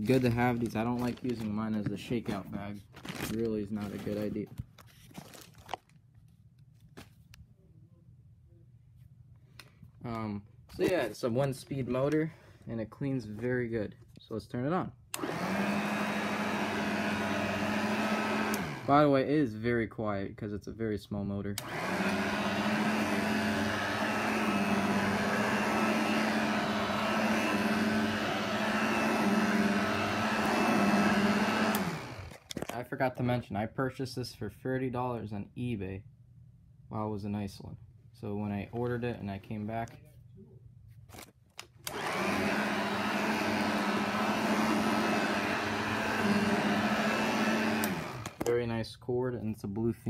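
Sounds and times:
hand vacuum motor running: 15.1 - 19.1, 21.6 - 32.7, 41.8 - 48.5.

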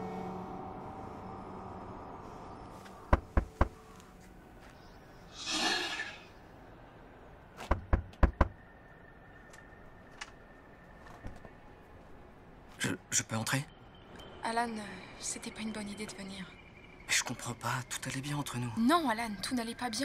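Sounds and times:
breathy rush of noise: 5.3 - 7.2
knuckles knocking on wooden door: 7.7 - 8.6.

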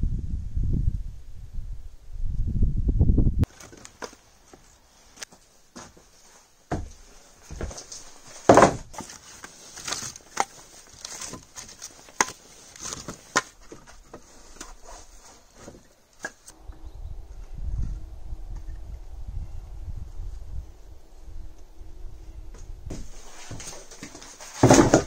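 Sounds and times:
wind rumble on microphone: 0.0 - 3.5, 16.5 - 23.2
wooden logs knocking and clattering: 6.7 - 14.8, 22.9 - 25.0.

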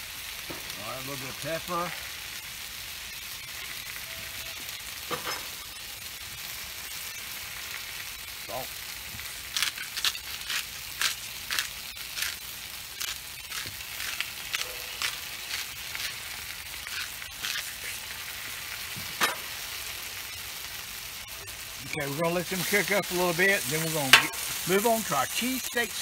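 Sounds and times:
potatoes sizzling on a griddle: 0.0 - 26.0
seasoning shaker rattling: 9.3 - 19.3, 21.8 - 26.0.

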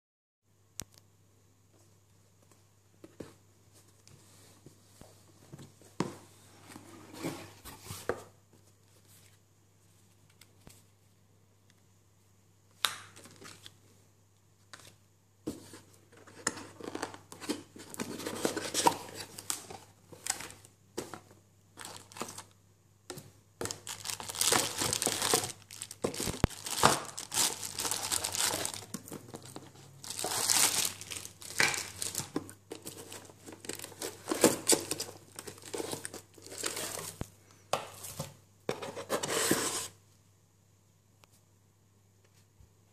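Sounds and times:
plastic packaging crinkling: 21.8 - 22.6, 23.6 - 37.2.

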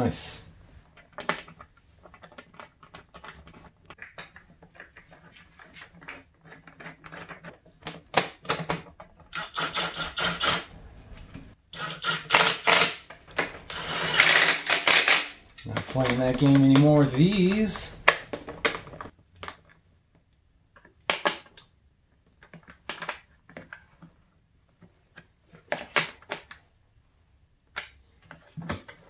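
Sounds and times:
socket ratchet clicking: 11.8 - 15.4.

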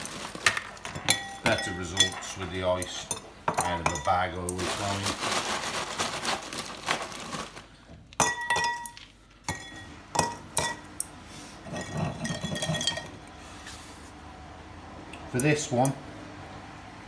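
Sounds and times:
glass ringing: 1.0 - 2.3, 8.2 - 10.9, 11.7 - 13.2
ice clinking on glass: 8.2 - 10.8, 11.7 - 13.2.

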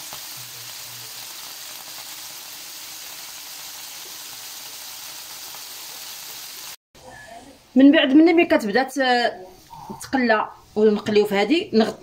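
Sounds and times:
meat patties sizzling in a pan: 0.0 - 6.8.

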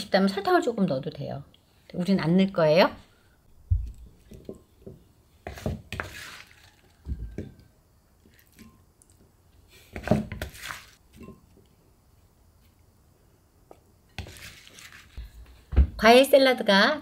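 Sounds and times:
spoon scraping a bowl: 5.5 - 7.0.

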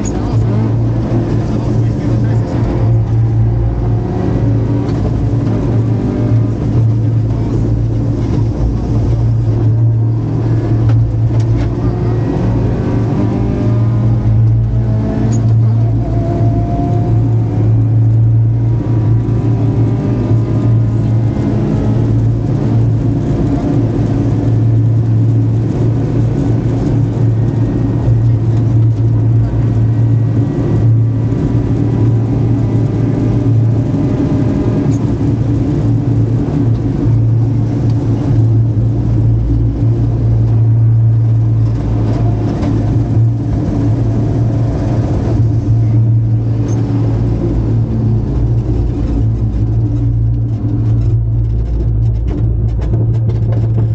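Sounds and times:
car engine revving: 0.0 - 53.9
road and wind noise: 0.0 - 53.9.

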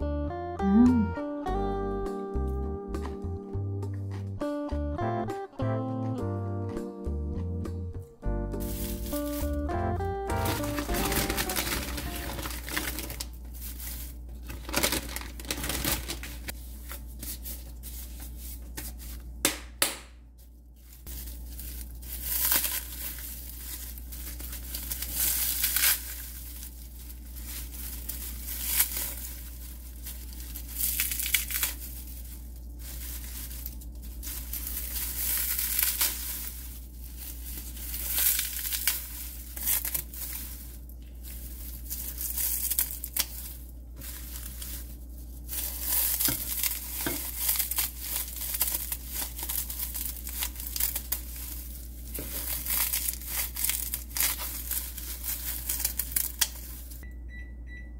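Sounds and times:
dried seaweed crinkling and tearing: 8.6 - 19.4, 20.4 - 57.0.

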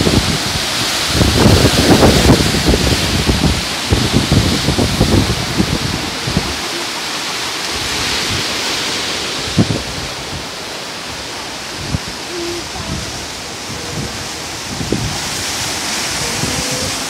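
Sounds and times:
wind thumps on microphone: 0.0 - 6.7, 9.4 - 10.5, 11.8 - 17.0
waves breaking on rocks: 0.0 - 17.0.

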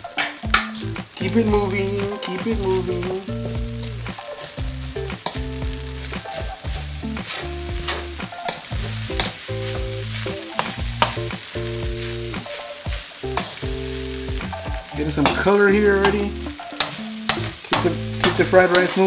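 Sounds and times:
rice sizzling: 0.0 - 19.0
steady low tones: 0.5 - 12.4, 13.2 - 18.9
metal spatula clanking on wok: 15.2 - 19.0.

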